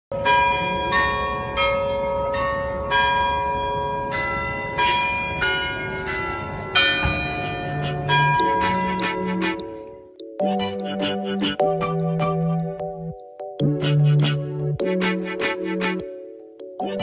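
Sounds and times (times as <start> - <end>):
church bells ringing: 0.1 - 10.2.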